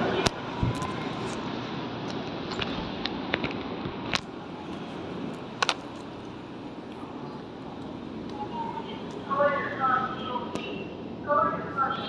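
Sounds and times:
train station hall ambience: 0:00.0 - 0:12.0.

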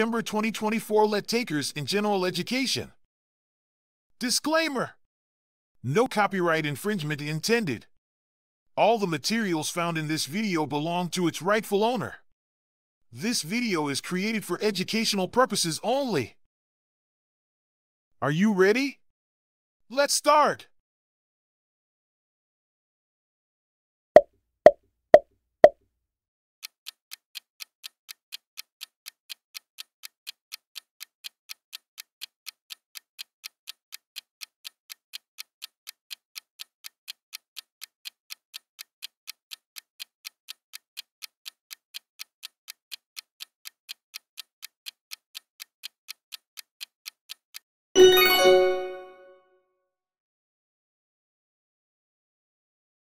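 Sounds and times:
clock ticking: 0:00.0 - 0:01.4, 0:27.6 - 0:49.0
bell-like chime: 0:48.0 - 0:49.4.

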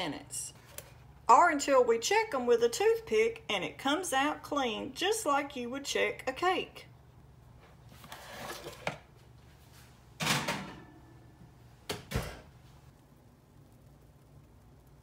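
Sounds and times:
metal muffin tin scraping clatter: 0:08.0 - 0:09.0
oven door shutting: 0:10.2 - 0:10.9.

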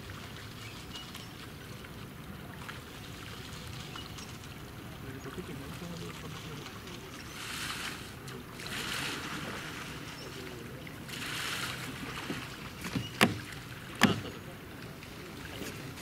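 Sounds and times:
kayak paddles splashing: 0:00.0 - 0:16.0
sharp knocks: 0:12.8 - 0:14.3.

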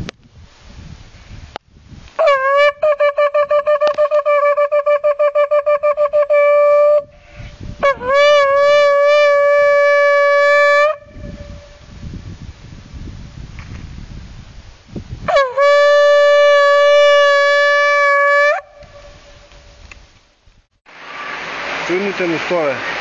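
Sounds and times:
shofar blasts: 0:02.2 - 0:11.9, 0:15.2 - 0:19.5.

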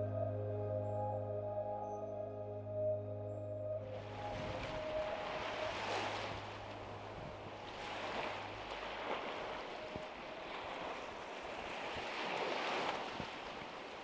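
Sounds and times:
low steady hum: 0:00.0 - 0:10.6
waves washing onto sand: 0:04.1 - 0:14.0.

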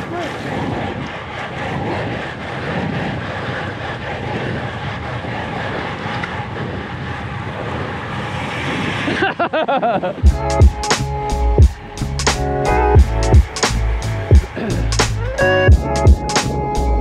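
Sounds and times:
tyre and road noise: 0:00.0 - 0:17.0
wind rushing over microphone: 0:00.0 - 0:17.0
music: 0:10.2 - 0:17.0.

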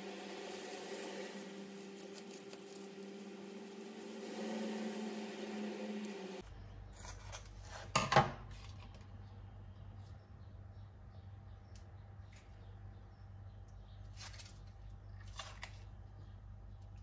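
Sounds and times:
low hum: 0:00.0 - 0:07.0.

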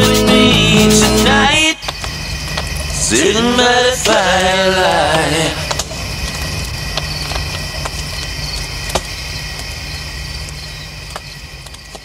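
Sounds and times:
crickets chirping: 0:00.0 - 0:12.0
sharp clicks: 0:01.6 - 0:04.6, 0:05.6 - 0:12.0.

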